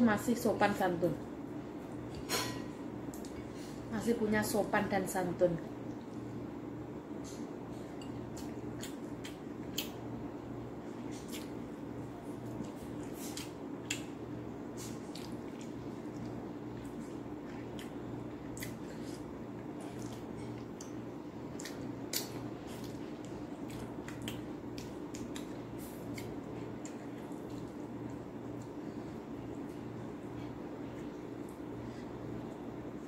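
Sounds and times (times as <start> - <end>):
steady low hum: 0.0 - 33.0
wet chewing clicks and smacks: 8.3 - 10.0, 11.1 - 11.7, 12.4 - 14.2, 14.8 - 28.8.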